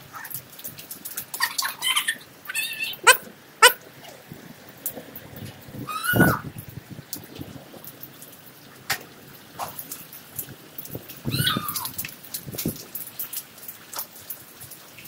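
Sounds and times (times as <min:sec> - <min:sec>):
rain on wet concrete: 0:00.0 - 0:15.0
short high falling cries: 0:05.8 - 0:06.4.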